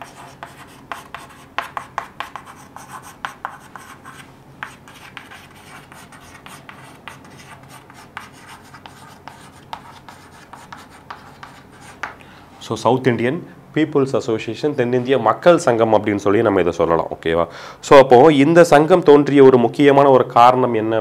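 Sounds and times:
chalk tapping and scratching: 0.0 - 12.2.

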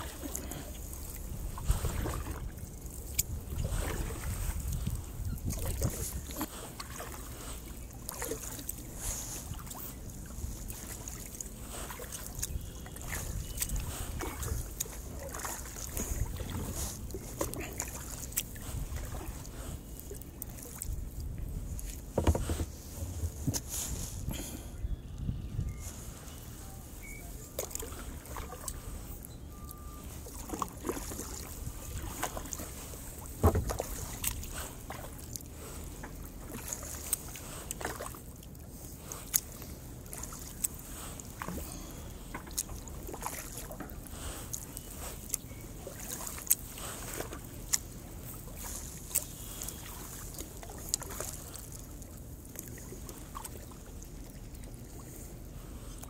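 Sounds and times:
sharp ticks and splashes: 0.0 - 22.4, 27.0 - 56.0
paddle dipping and dripping: 0.0 - 24.9, 25.5 - 56.0
kayak knock: 22.1 - 23.6, 33.4 - 33.9.

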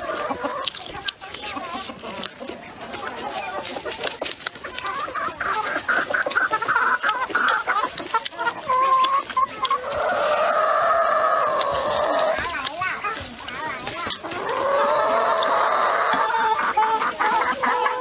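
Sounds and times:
chewing: 0.0 - 17.5
chickens clucking: 0.0 - 18.0
chopsticks clicking against bowl: 9.0 - 9.8.

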